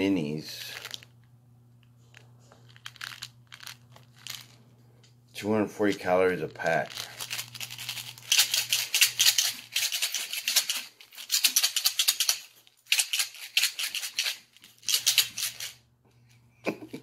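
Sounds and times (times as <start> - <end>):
candy rattling in shaken pack: 0.4 - 1.1, 2.0 - 4.7, 5.7 - 15.9.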